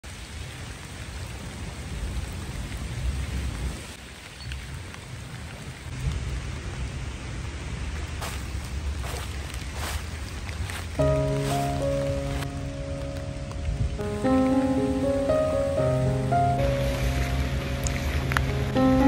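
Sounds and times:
rain on wet pavement: 0.0s - 19.0s
low uneven rumble: 6.0s - 19.0s.

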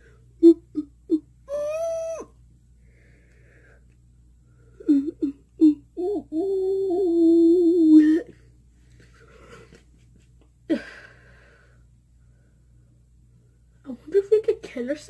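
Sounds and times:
girl holding long vocal note: 0.4s - 2.3s
girl yelping: 1.5s - 2.3s.

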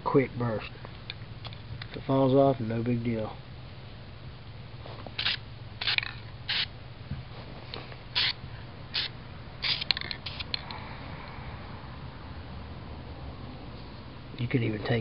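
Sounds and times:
spray paint can hissing: 5.2s - 6.7s, 8.2s - 10.6s.

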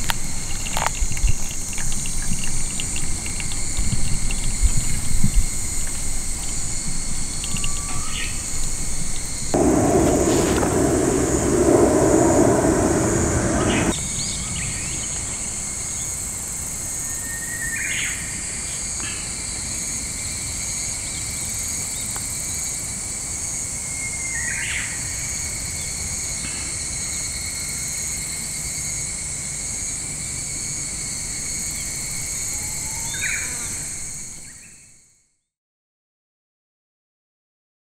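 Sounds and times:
insects chirring: 9.6s - 14.0s
loud rushing noise: 9.6s - 14.0s.

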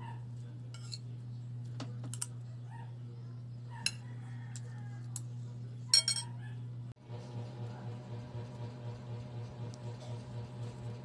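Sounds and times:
cutlery tapping on a plate: 1.8s - 2.4s, 6.0s - 6.2s.

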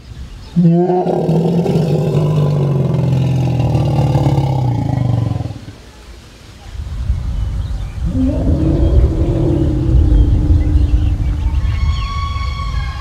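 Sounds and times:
elephant rumbling call: 0.5s - 5.9s, 8.0s - 13.0s.

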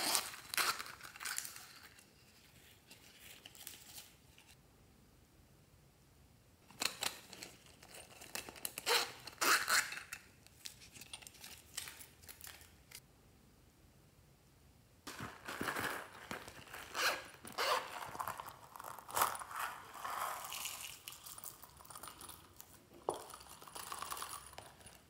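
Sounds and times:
zips pulled open: 0.0s - 1.2s, 16.8s - 18.6s.

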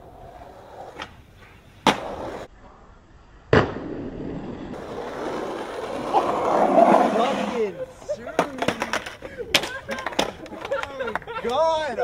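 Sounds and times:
skateboard wheels rolling on asphalt: 0.0s - 12.0s
skateboard landing clack: 1.8s - 2.4s, 3.5s - 4.5s, 8.4s - 11.2s.

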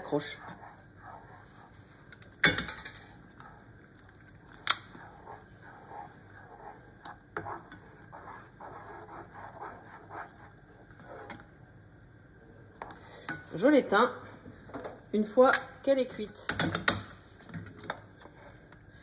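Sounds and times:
spatula scraping saucepan: 0.0s - 3.6s, 4.4s - 11.5s.

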